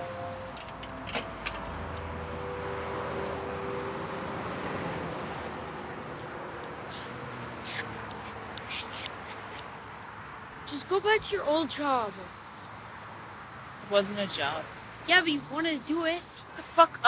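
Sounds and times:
road traffic: 0:00.0 - 0:17.0.

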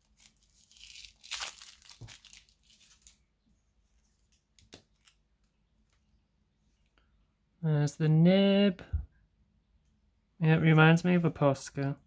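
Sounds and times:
plastic rustling and crackling: 0:00.0 - 0:03.3.

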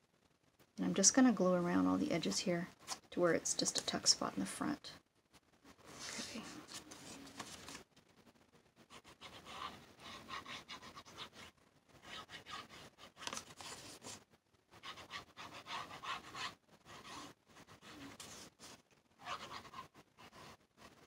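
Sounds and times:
paper rustling and rubbing: 0:05.8 - 0:07.8, 0:09.0 - 0:21.0.

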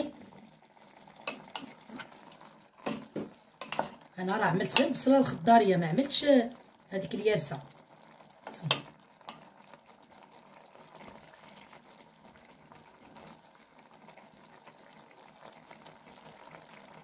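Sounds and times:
pot simmering with crackles: 0:00.0 - 0:17.0.

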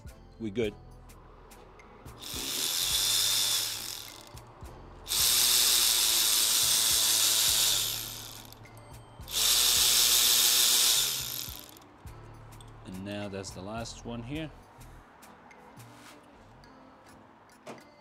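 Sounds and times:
cordless electric ratchet running: 0:02.2 - 0:04.4, 0:05.1 - 0:08.6, 0:09.3 - 0:11.8.

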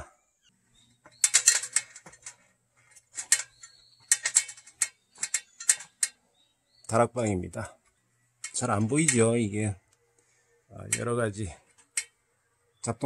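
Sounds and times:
footsteps on ladder rungs: 0:01.0 - 0:06.2.

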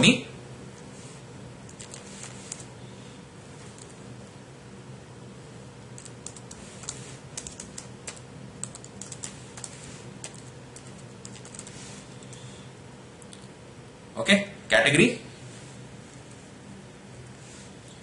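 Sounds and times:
faint steady hum: 0:00.0 - 0:18.0
keyboard typing: 0:01.7 - 0:02.7, 0:03.8 - 0:04.0, 0:06.0 - 0:12.4.

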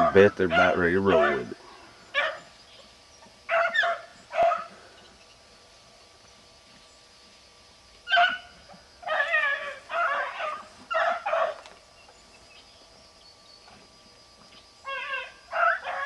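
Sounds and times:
dogs baying: 0:00.0 - 0:02.5, 0:03.5 - 0:04.8, 0:08.1 - 0:11.7, 0:14.9 - 0:16.0
dog yelp: 0:00.5 - 0:01.5, 0:02.2 - 0:02.5, 0:03.5 - 0:04.7, 0:08.1 - 0:11.6, 0:14.9 - 0:16.0.

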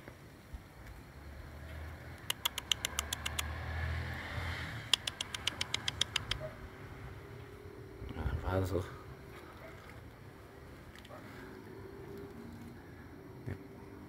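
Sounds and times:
sharp mouth clicks: 0:02.2 - 0:03.6, 0:04.9 - 0:06.4.

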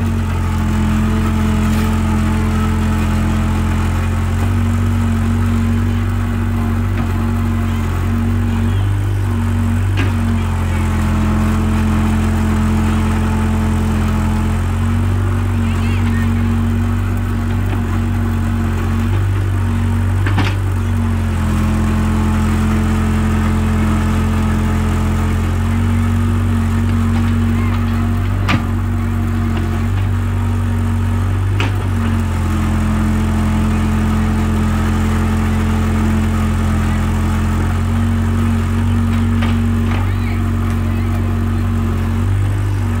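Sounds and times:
excavator diesel engine running: 0:00.0 - 0:43.0.

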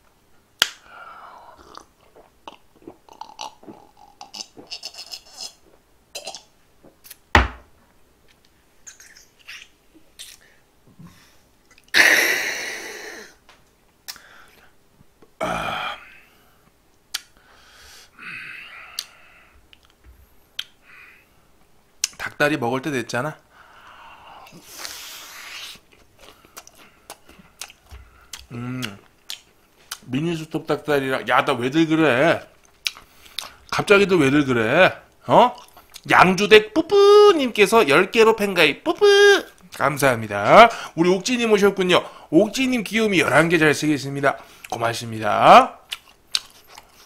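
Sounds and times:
lip smacks: 0:00.6 - 0:00.9, 0:14.0 - 0:14.3, 0:17.1 - 0:17.4, 0:19.0 - 0:20.0, 0:20.6 - 0:20.8, 0:24.4 - 0:30.1, 0:32.6 - 0:33.6, 0:45.9 - 0:47.0
man swallowing: 0:01.5 - 0:05.6, 0:28.3 - 0:29.1
glass knocking on table: 0:07.4 - 0:07.6
breathy exhale: 0:17.4 - 0:19.6.

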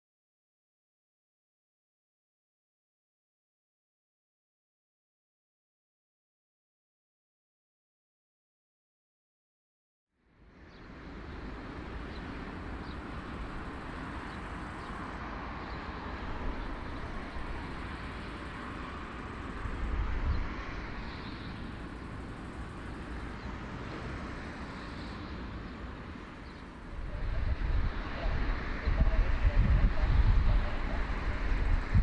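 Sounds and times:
jet engines taxiing drone: 0:10.3 - 0:32.0
wind rumble on microphone: 0:10.8 - 0:32.0.

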